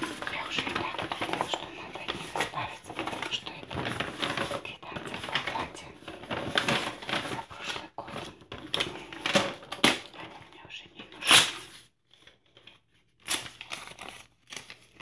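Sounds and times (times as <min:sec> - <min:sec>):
paper rustling and crinkling: 0:00.0 - 0:15.0.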